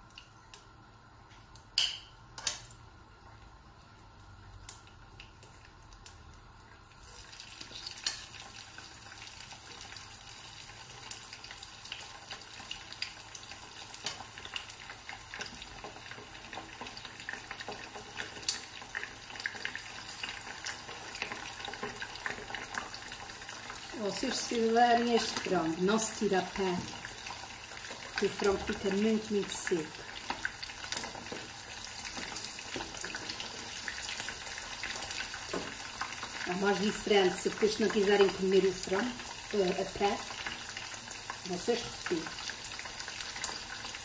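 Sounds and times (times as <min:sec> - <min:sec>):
chicken frying in hot oil: 0:00.0 - 0:44.0
tongs clacking against pan: 0:01.8 - 0:02.7.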